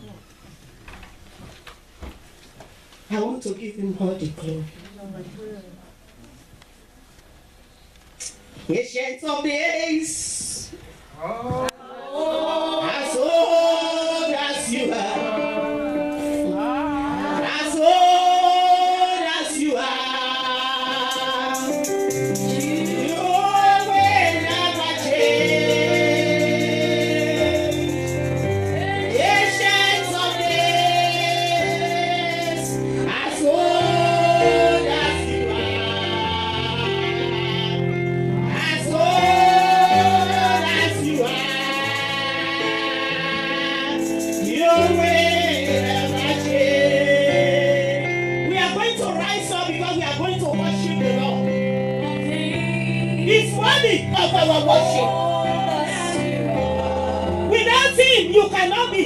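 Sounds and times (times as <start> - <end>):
woman singing gospel: 11.8 - 51.4, 52.0 - 59.0
backing instruments: 21.1 - 48.7.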